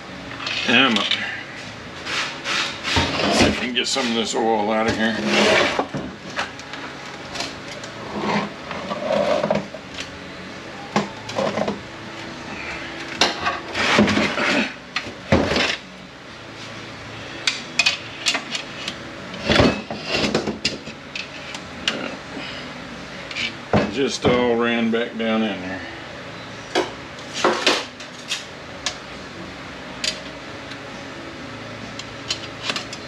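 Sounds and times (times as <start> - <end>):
metal scraping on bench: 2.0 - 6.0, 8.0 - 9.8, 12.7 - 14.8, 17.8 - 22.1
metal clanks and knocks: 19.4 - 21.3.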